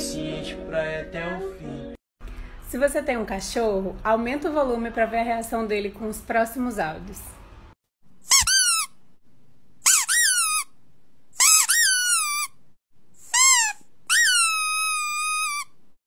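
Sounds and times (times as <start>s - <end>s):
high-pitched squeaks: 8.2s - 9.0s, 9.8s - 10.7s, 11.4s - 12.6s, 13.2s - 15.8s.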